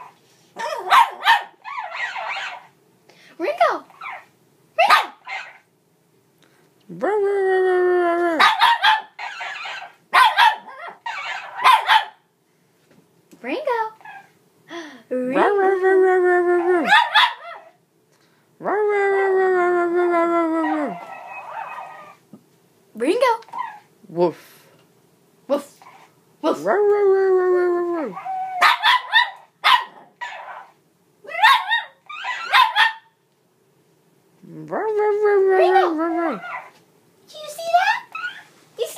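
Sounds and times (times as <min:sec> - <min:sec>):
puppy barking: 0:00.0 - 0:02.7, 0:04.0 - 0:05.6, 0:08.4 - 0:12.2, 0:16.8 - 0:17.8, 0:28.2 - 0:30.7, 0:31.3 - 0:33.2.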